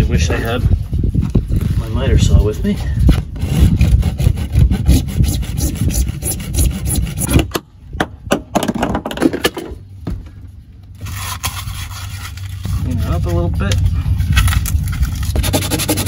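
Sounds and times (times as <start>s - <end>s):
hand saw cutting plastic pipe: 15.3s - 16.0s.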